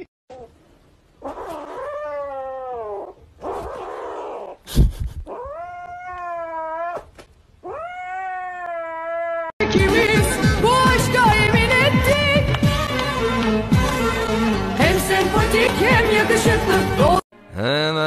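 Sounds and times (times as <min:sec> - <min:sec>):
cat growling: 0:01.2 - 0:04.6, 0:05.2 - 0:09.5
cat yowling: 0:01.2 - 0:04.6, 0:05.3 - 0:09.5.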